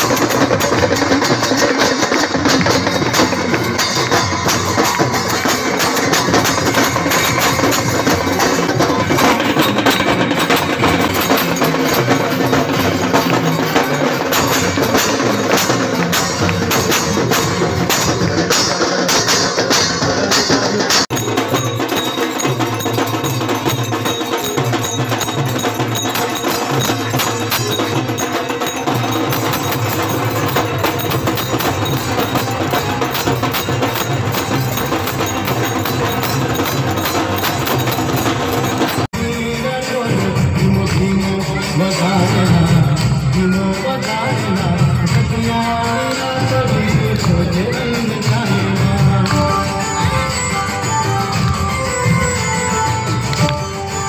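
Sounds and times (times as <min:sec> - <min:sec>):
drumming and percussion: 0:00.0 - 0:54.0
rhythmic hand-clapping: 0:12.8 - 0:19.8, 0:42.8 - 0:43.4, 0:44.9 - 0:50.2.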